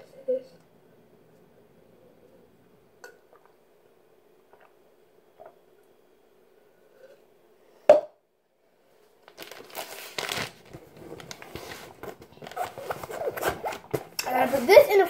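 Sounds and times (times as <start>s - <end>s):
plastic packaging crinkling: 9.2s - 15.0s.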